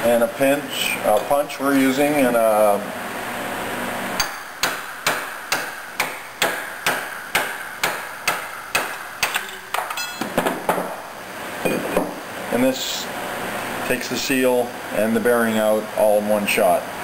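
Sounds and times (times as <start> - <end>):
hammer striking metal punch: 4.2 - 11.0.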